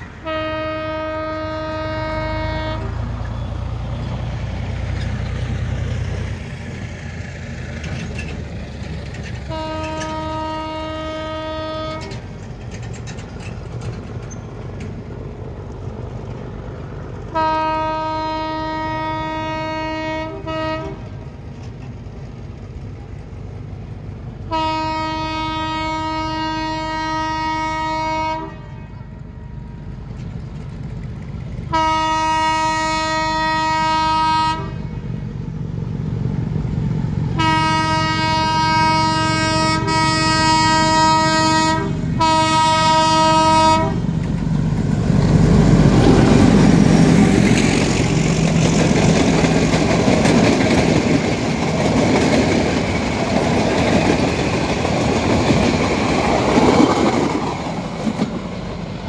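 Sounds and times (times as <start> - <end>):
diesel engine rumbling: 0.0 - 59.0
train horn blasts: 0.2 - 3.5, 9.5 - 12.2, 17.3 - 21.2, 24.5 - 29.7, 31.7 - 35.1, 37.3 - 44.1.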